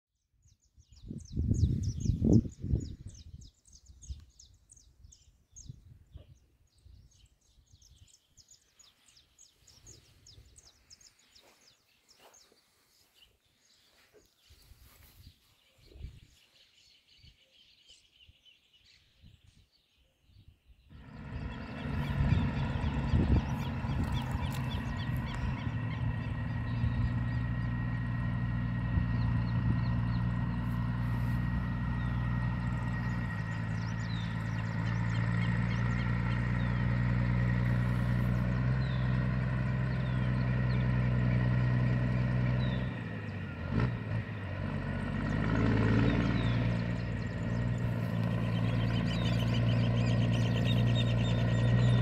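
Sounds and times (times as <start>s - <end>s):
truck diesel engine under load: 20.9s - 52.0s.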